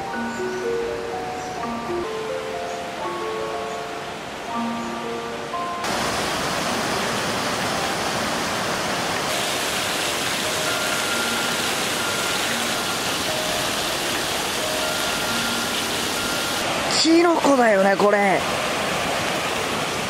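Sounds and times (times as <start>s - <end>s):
plinking mallet music: 0.0s - 5.9s, 9.3s - 16.7s
running water rushing: 0.1s - 20.0s.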